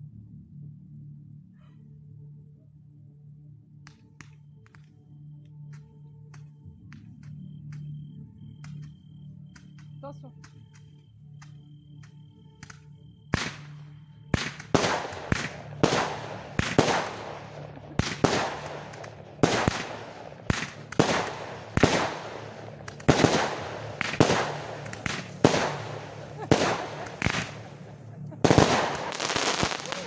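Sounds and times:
fireworks bangs: 14.4 - 30.0.

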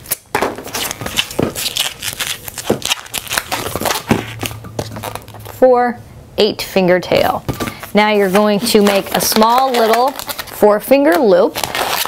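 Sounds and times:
balloon squeaking and rubbing: 0.7 - 5.6, 11.6 - 12.0.

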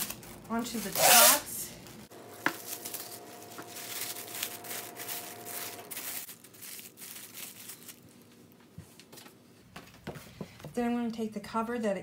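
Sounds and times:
plastic wrap crinkling: 0.0 - 9.2.

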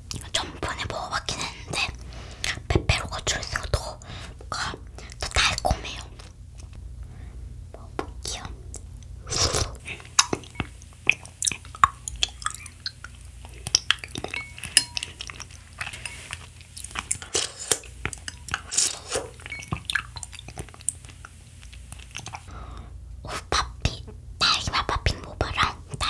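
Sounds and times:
close-miked chewing: 8.3 - 22.5
spoon clinking in a glass: 14.2 - 15.1.

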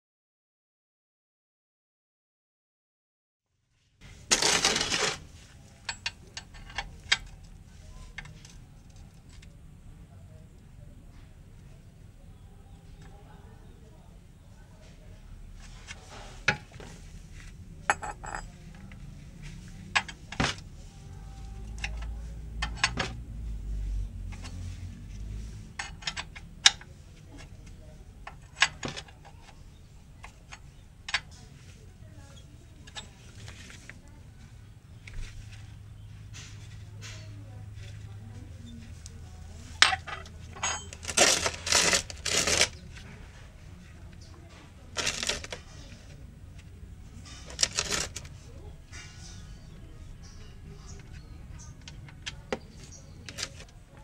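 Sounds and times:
wrench handling rustle: 4.3 - 9.5, 39.7 - 43.0, 44.9 - 46.0, 47.2 - 49.4.

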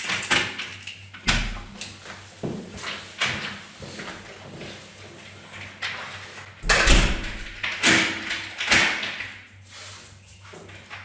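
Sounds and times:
door shutting with deep thud: 1.3 - 1.7, 6.6 - 7.7.

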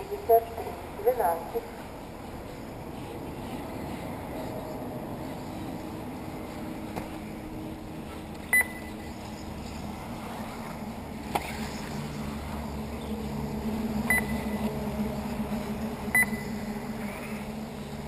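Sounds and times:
radio-controlled cars humming: 0.0 - 18.0
short high electronic beeps: 8.5 - 9.0, 14.1 - 14.6, 16.1 - 16.6.

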